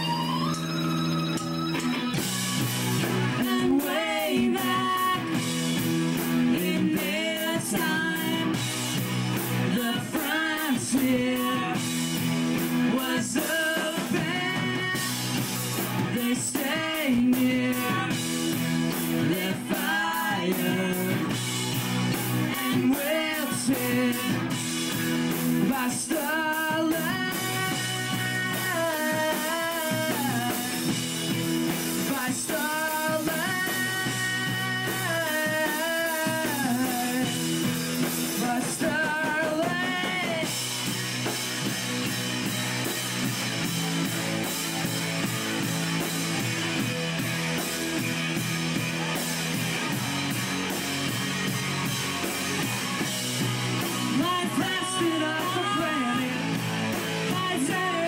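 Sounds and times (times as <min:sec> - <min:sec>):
sliding guitar lead melody: 0:00.0 - 0:07.1, 0:39.6 - 0:58.0
live rock band playing: 0:00.0 - 0:58.0.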